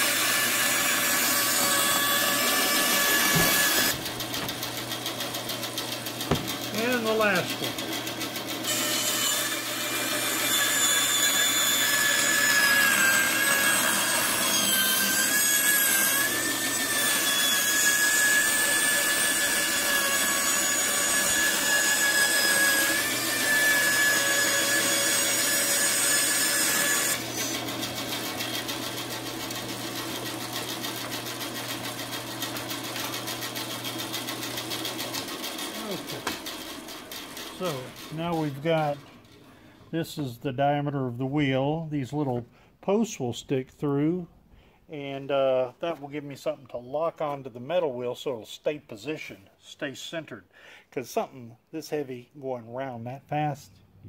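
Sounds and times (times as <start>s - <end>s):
saw blade rasping through wood: 0.0s - 39.0s
bandsaw whine: 0.0s - 39.1s.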